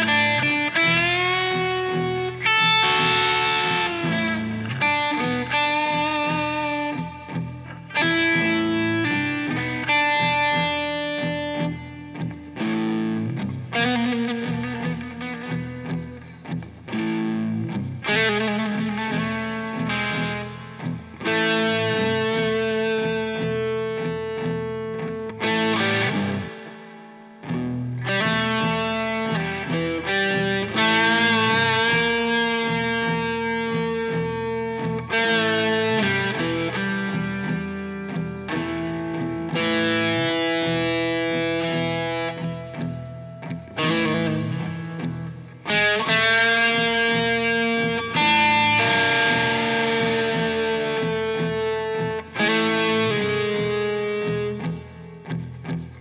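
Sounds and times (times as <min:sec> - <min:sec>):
electric guitar playing blues: 0:00.0 - 0:56.0.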